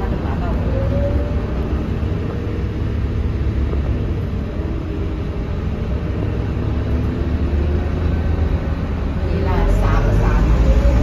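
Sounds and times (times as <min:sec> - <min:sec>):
bus diesel engine droning: 0:00.0 - 0:11.0.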